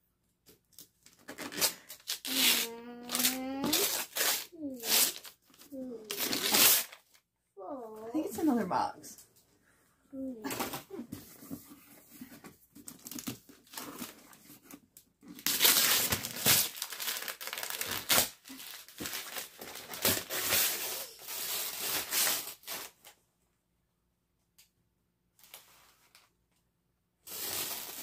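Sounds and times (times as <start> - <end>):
wrapping paper tearing: 1.1 - 7.2, 15.3 - 23.1, 27.2 - 28.0.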